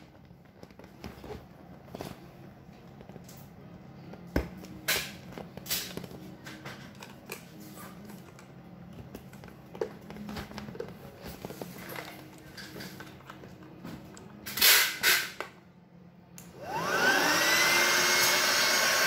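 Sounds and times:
vinyl crinkling and tapping: 0.0 - 14.4.

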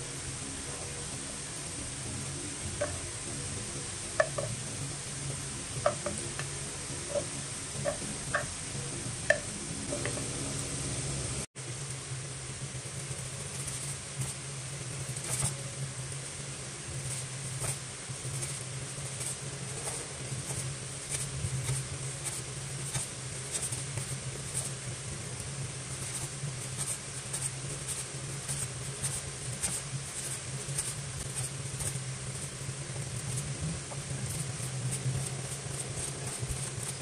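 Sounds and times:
low hum: 0.0 - 22.8.

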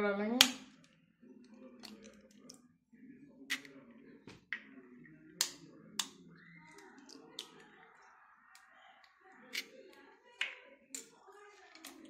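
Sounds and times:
eggs cracked on steel bowl: 0.4 - 0.9, 5.4 - 6.2.

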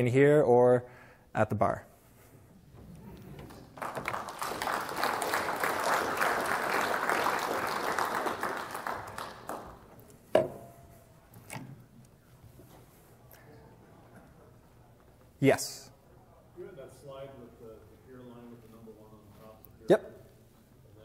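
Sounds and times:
audience applauding: 3.2 - 9.9.

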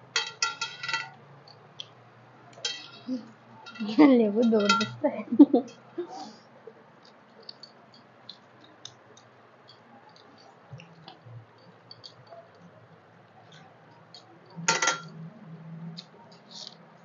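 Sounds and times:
mouths chewing: 6.8 - 14.6
fingers mixing rice on steel plates: 7.0 - 15.1.

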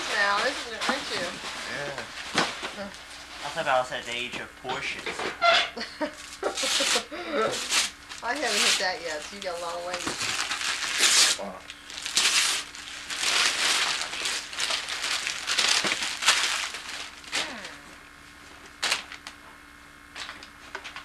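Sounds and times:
paper crinkling and rustling: 6.5 - 17.4, 18.6 - 19.4.

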